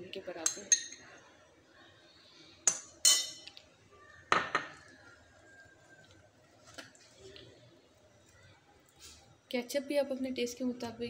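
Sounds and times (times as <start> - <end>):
metal spoon clinking on glass: 2.7 - 3.5.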